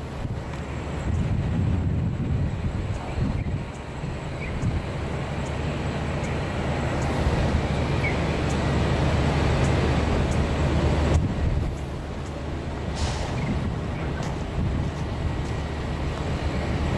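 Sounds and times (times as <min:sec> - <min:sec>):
heavy truck engine rumbling: 0:00.0 - 0:16.9.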